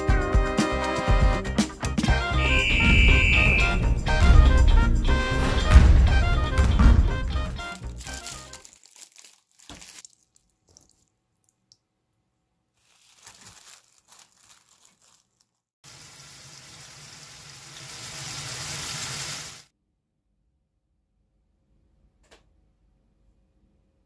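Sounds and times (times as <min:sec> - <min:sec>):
water running from tap: 0:15.8 - 0:19.7.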